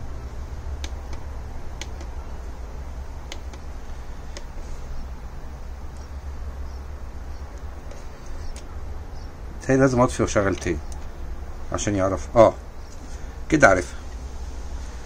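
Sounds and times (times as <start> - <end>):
steady low hum: 0.0 - 15.0
remote controller button clicks: 0.8 - 2.2, 3.3 - 3.7.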